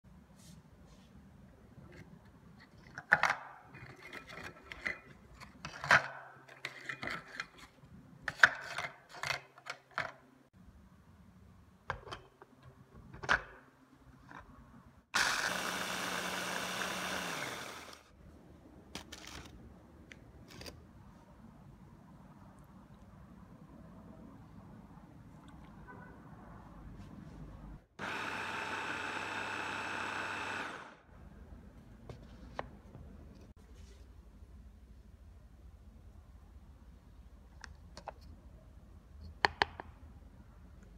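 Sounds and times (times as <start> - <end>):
mini chopper motor grinding: 15.2 - 18.1, 28.0 - 31.0.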